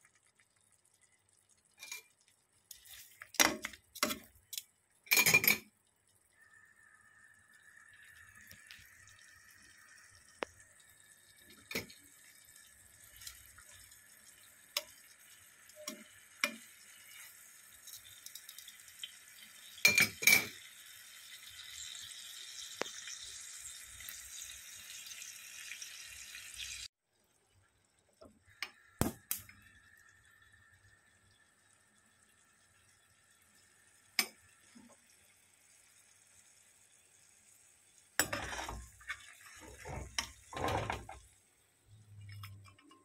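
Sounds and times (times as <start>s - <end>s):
ribs sizzling in a frying pan: 6.5s - 26.9s, 28.8s - 41.3s.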